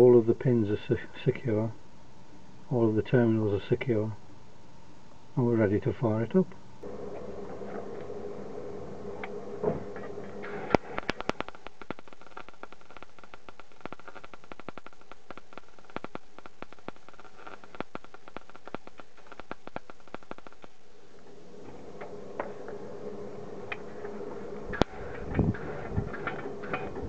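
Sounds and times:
welder arc crackling and popping: 6.1s - 27.0s.

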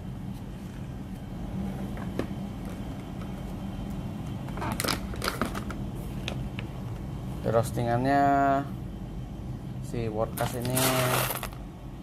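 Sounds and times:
steady low hum: 0.0s - 12.0s
foil bag crinkling: 10.4s - 11.6s.

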